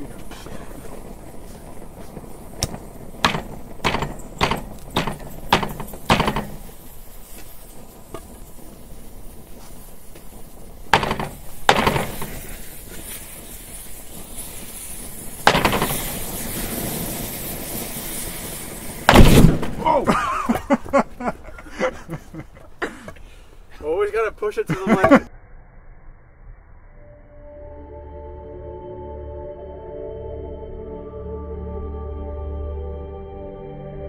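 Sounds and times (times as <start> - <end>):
aerosol can hissing: 2.0 - 19.4
wooden board knocking on wood: 3.2 - 6.6.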